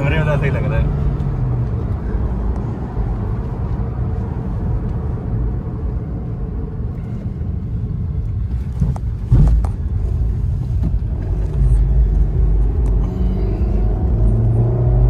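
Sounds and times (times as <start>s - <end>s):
car engine and road noise: 0.0s - 15.0s
loud thump: 8.8s - 9.8s.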